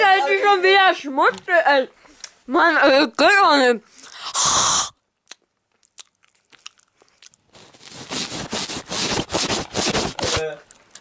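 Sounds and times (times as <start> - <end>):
breathy burst: 4.0 - 5.0
close-up chewing and crunching: 5.1 - 8.1, 10.6 - 11.0.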